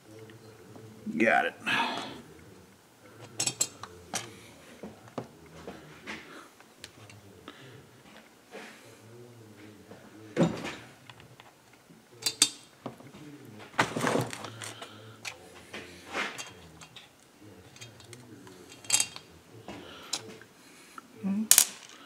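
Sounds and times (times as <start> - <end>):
metal tools clinking: 3.4 - 4.3, 12.2 - 12.7, 16.2 - 19.3.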